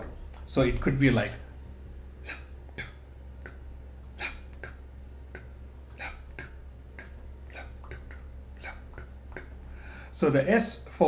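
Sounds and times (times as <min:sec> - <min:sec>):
man making breathy mouth beats: 0:02.2 - 0:10.1.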